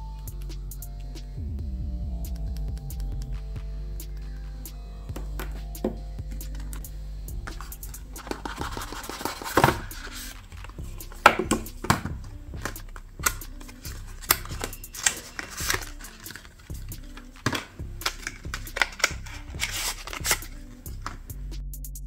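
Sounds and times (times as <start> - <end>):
quiet background music: 0.0 - 21.6
cardboard box handling: 7.5 - 21.2.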